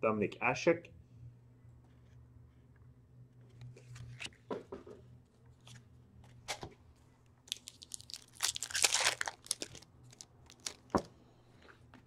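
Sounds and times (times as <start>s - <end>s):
card pack wrapper crinkling: 7.5s - 11.1s.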